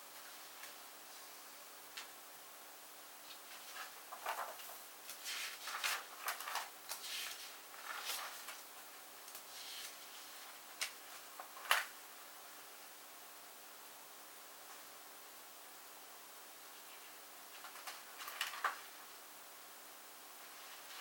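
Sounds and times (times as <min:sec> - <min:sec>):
binder pages rustling and flapping: 0:03.2 - 0:12.0, 0:17.5 - 0:19.0.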